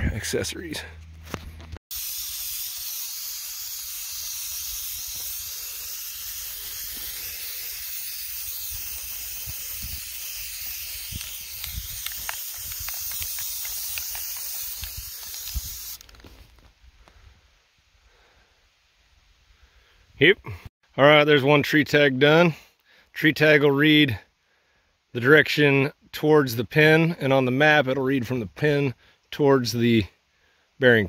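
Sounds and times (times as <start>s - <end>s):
spray paint can hissing: 1.9s - 16.2s.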